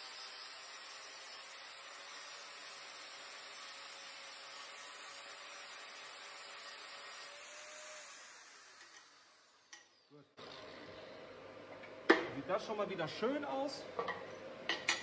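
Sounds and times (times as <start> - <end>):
angle grinder grinding steel: 0.0 - 10.8.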